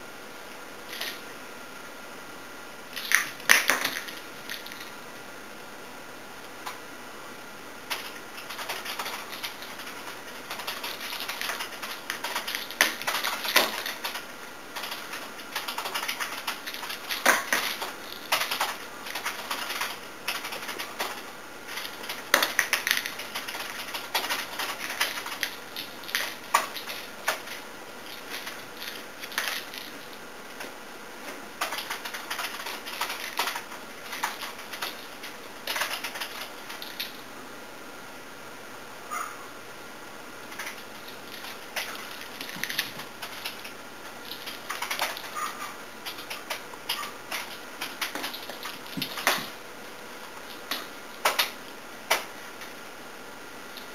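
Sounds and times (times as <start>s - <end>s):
keyboard typing: 7.9s - 30.7s, 31.3s - 37.2s, 40.5s - 49.6s, 50.2s - 52.3s.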